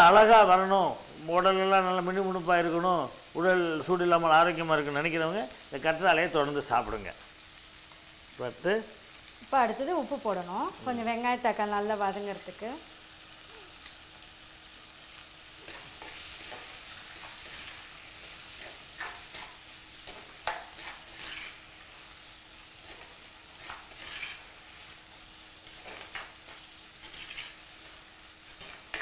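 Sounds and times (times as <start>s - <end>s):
vegetables sizzling in oil: 0.0s - 29.0s
steel ladle scraping a pot: 20.8s - 21.6s, 23.6s - 24.5s, 27.0s - 27.6s.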